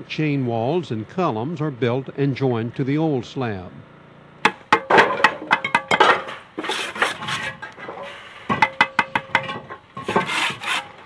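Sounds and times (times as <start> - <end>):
trowel clinking on blocks: 4.5 - 7.9
trowel scraping mortar: 6.3 - 8.2, 10.0 - 11.0.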